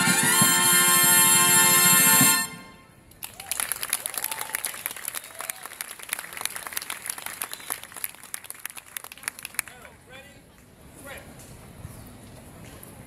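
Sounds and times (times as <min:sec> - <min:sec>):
trumpet ensemble chord: 0:00.0 - 0:03.0
audience applauding: 0:03.2 - 0:09.9.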